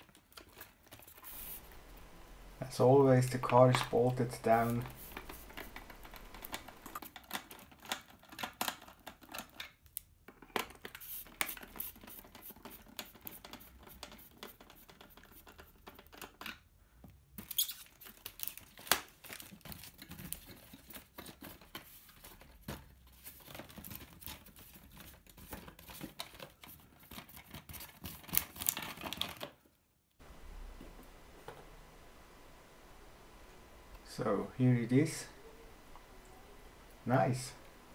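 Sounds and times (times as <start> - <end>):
plastic crinkling: 17.5 - 29.6.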